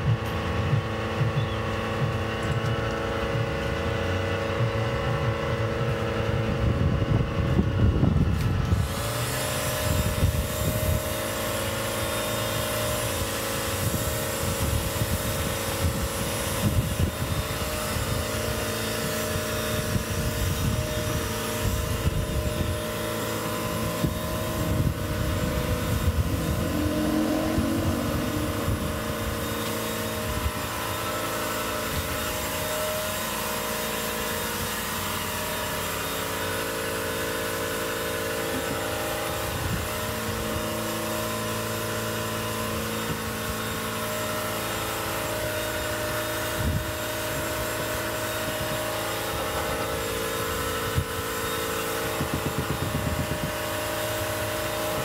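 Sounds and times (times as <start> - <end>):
machine humming: 0.0 - 55.0
low rumbling: 16.7 - 33.0.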